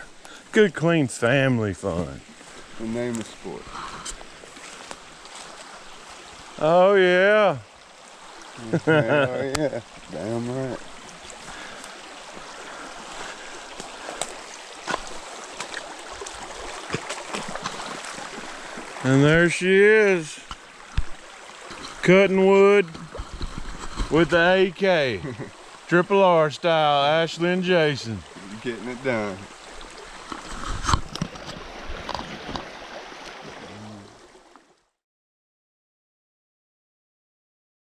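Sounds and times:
creek running: 0.0s - 35.0s
footsteps through brush: 2.3s - 6.4s, 10.8s - 18.9s.

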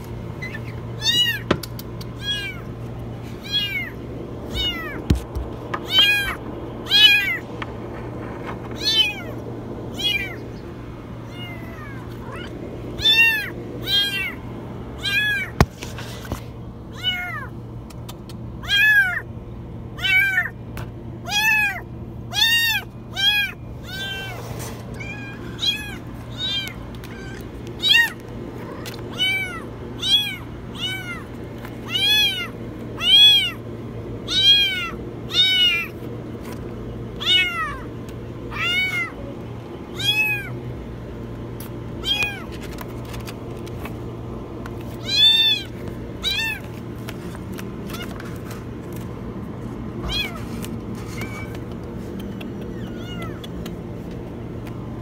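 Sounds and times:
kitten meowing: 0.4s - 1.5s, 2.1s - 2.7s, 3.4s - 5.1s, 5.8s - 7.4s, 8.8s - 10.4s, 11.2s - 14.4s, 15.0s - 15.6s, 18.6s - 19.2s, 20.0s - 20.5s, 21.2s - 33.6s, 34.3s - 35.9s, 37.2s - 37.9s, 38.5s - 39.2s, 39.9s - 40.5s, 42.0s - 42.5s, 45.0s - 46.7s, 50.0s - 50.5s, 52.5s - 53.6s.

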